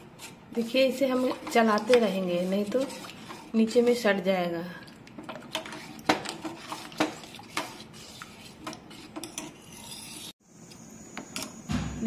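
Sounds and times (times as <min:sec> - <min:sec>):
spoon scraping and clinking in pan: 0:05.5 - 0:10.3.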